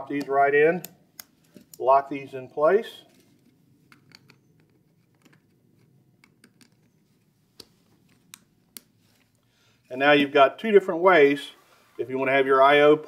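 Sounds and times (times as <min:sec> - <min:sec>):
plastic connectors clicking: 0:03.9 - 0:07.0, 0:07.6 - 0:08.9.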